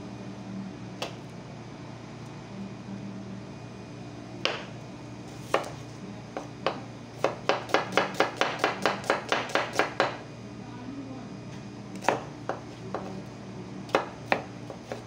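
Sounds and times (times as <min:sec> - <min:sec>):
knife slicing onions on board: 0:05.4 - 0:05.8, 0:06.4 - 0:10.2, 0:13.9 - 0:15.0.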